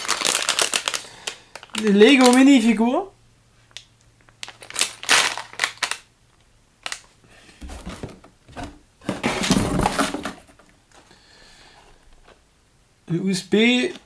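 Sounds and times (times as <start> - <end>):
packaging crinkling clicks: 0.0 - 2.5, 3.7 - 7.2
cardboard rustling and scraping: 7.6 - 11.1.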